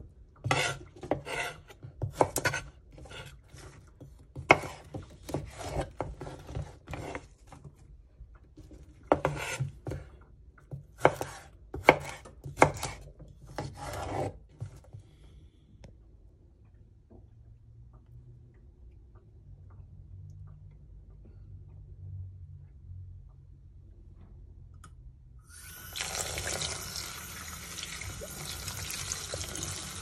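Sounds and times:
blade scraping board: 0.4 - 3.7, 9.1 - 10.1, 13.6 - 14.7
knife chopping on wooden board: 0.5 - 3.7, 4.3 - 7.3, 9.1 - 10.1, 10.7 - 14.4.

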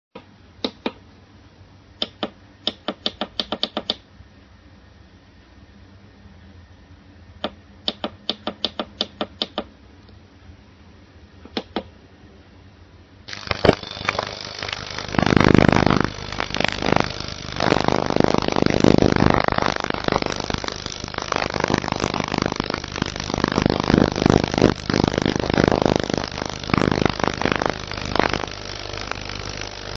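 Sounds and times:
ultrasonic cleaner hissing: 13.3 - 30.0.

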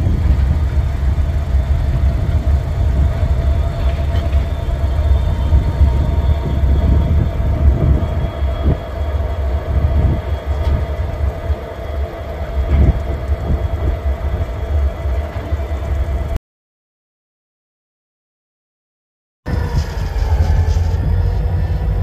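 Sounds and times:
diesel locomotive engine rumble: 0.0 - 16.4, 19.5 - 22.0.

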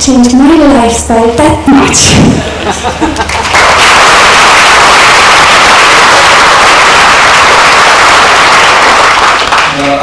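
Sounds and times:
audience applause: 3.2 - 10.0.

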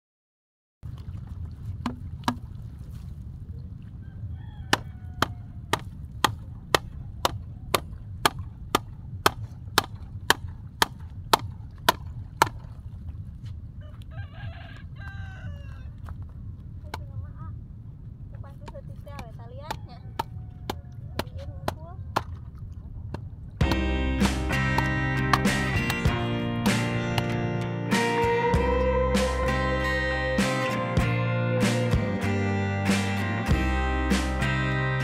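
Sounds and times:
low wind rumble: 0.8 - 32.3
wooden stake pounded into ground: 1.8 - 2.4.

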